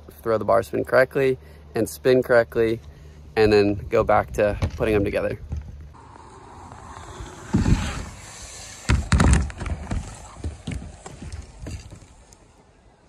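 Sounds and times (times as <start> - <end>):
bike knocks and rattles: 4.5 - 5.8, 8.8 - 12.3
mountain bike landing thud: 6.8 - 12.0.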